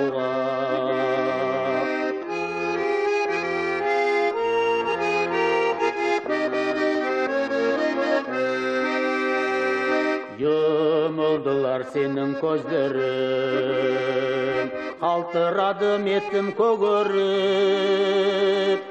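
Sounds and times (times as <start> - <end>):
instrumental folk melody: 0.0 - 18.9.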